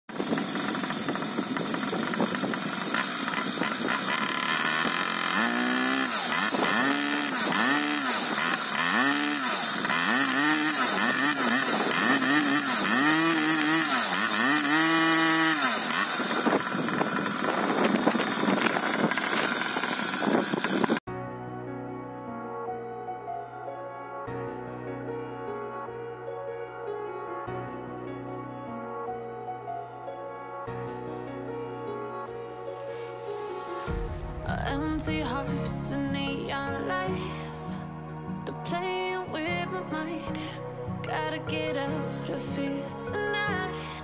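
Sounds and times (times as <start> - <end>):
small two-stroke engine revving: 0.1 - 21.0.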